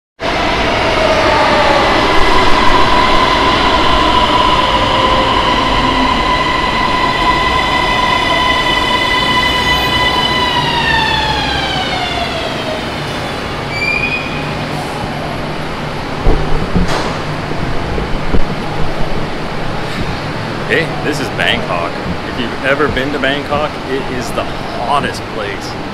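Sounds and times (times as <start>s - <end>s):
train rumble and rush: 0.2s - 25.9s.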